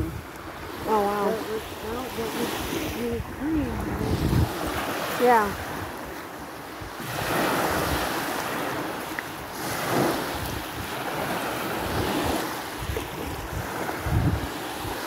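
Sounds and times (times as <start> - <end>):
waves washing onto beach: 0.0 - 15.0
wind buffeting microphone: 0.0 - 15.0.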